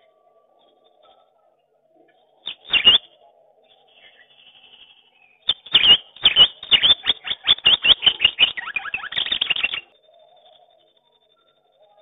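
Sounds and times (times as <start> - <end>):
squirrel chirping call: 2.4 - 3.1, 4.0 - 10.8.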